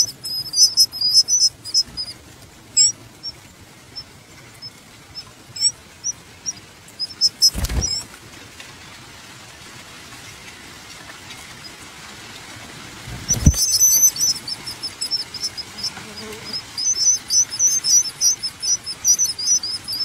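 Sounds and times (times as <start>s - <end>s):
nestling birds begging chirps: 0.0s - 8.1s, 13.2s - 20.0s.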